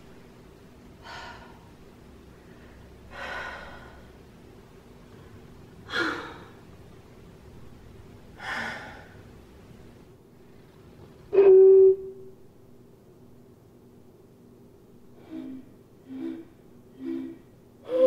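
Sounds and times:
woman sighing: 5.9s - 6.6s.

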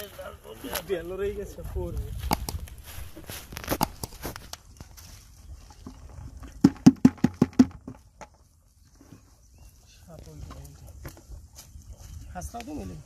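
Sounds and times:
hand smacking plastic bucket: 6.5s - 8.4s.

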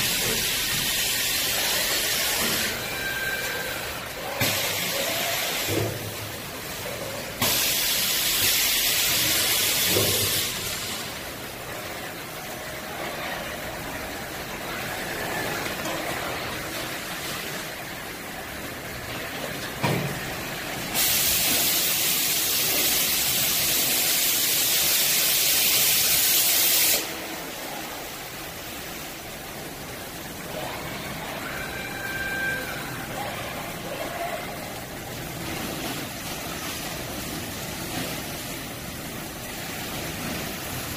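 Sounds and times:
palletizing machinery running: 0.0s - 32.0s, 32.6s - 40.9s.

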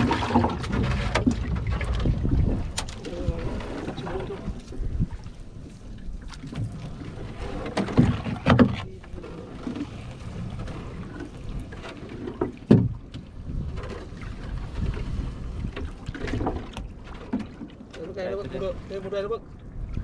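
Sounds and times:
low rumble of water and wind: 0.0s - 20.0s
loud splashes or knocks: 6.3s - 8.8s.

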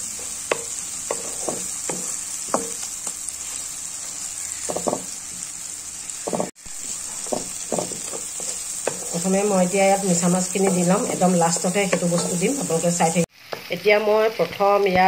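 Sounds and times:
masala sizzling in oil: 0.0s - 15.0s
wooden spatula scraping a pan: 0.1s - 5.2s, 6.2s - 12.6s.

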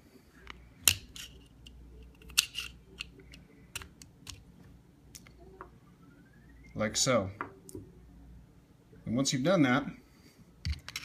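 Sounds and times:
pistol parts clicking and scraping: 0.4s - 4.4s, 10.6s - 11.0s.

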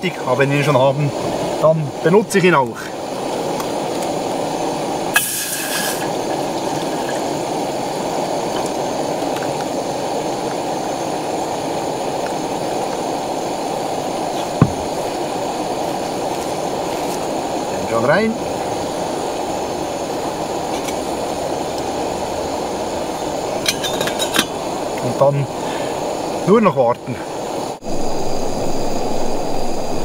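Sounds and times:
gas stove burner: 2.6s - 17.6s
short hiss: 5.1s - 7.3s
knock: 14.6s - 14.9s.

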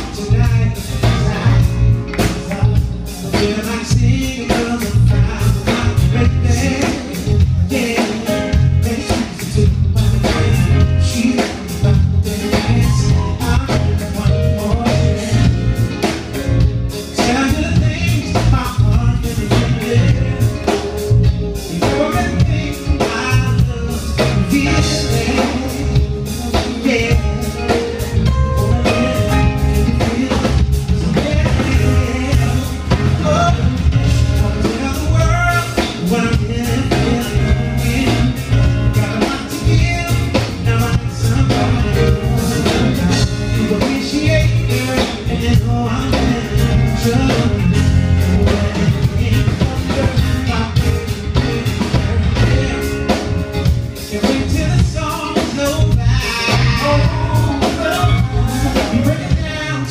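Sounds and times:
man singing into a microphone: 0.0s - 16.2s, 17.0s - 59.9s
live band playing smooth jazz: 0.0s - 59.9s.

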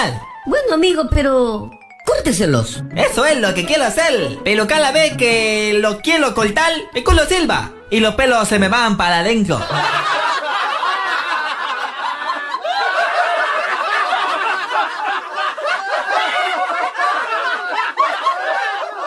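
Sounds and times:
people laughing: 9.5s - 19.0s.

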